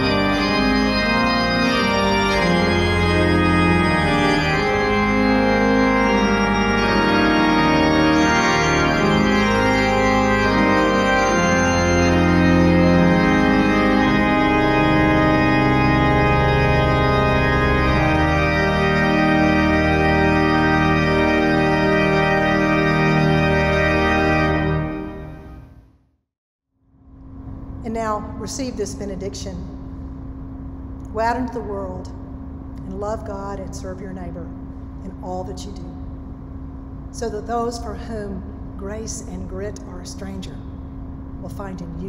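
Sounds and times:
organ playing a hymn: 0:00.0 - 0:25.8.

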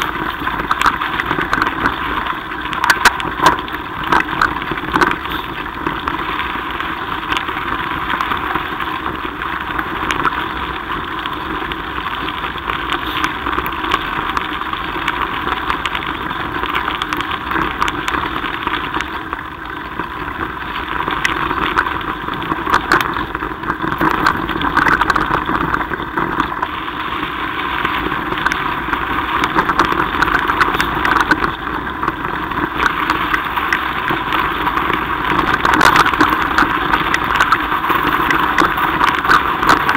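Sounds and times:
bike clicks and rattles: 0:00.0 - 0:26.7
bike rumbling on gravel track: 0:00.0 - 0:39.9.

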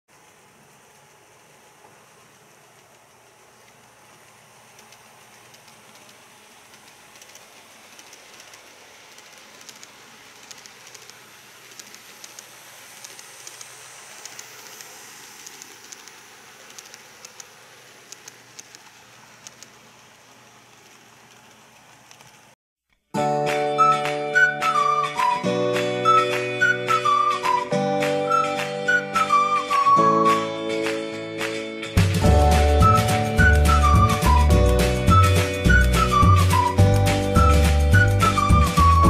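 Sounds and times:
model train rolling hiss: 0:00.2 - 0:22.6
wheels clicking on rail joints: 0:00.2 - 0:22.6.

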